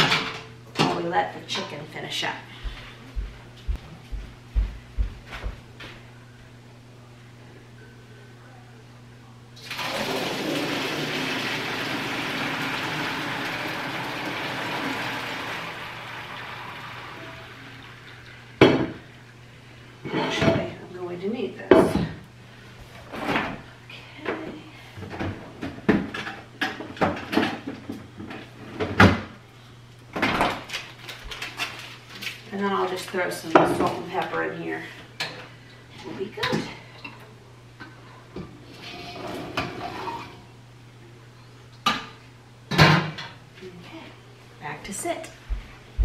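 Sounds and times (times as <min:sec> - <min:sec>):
water poured into sink: 0:09.6 - 0:18.4.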